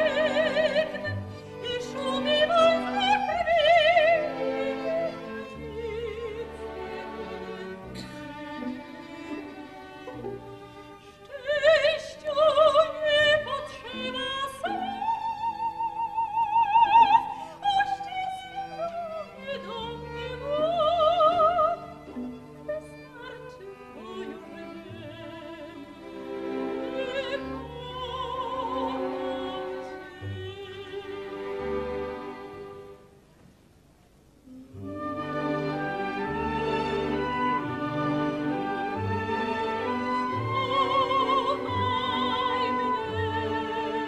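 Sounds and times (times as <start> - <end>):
soprano singing with vibrato: 0.0 - 7.8, 11.2 - 22.1, 22.7 - 26.2, 26.8 - 31.5, 38.4 - 44.0
orchestra playing waltz: 0.0 - 16.0, 16.6 - 33.0, 34.5 - 44.0.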